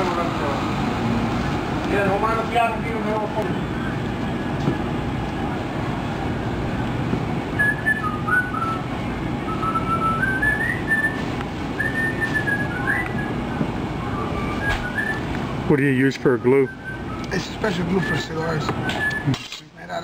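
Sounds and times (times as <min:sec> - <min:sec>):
person whistling a tune: 0:07.6 - 0:08.8, 0:09.5 - 0:11.2, 0:11.8 - 0:13.4, 0:14.0 - 0:15.3, 0:16.2 - 0:19.4.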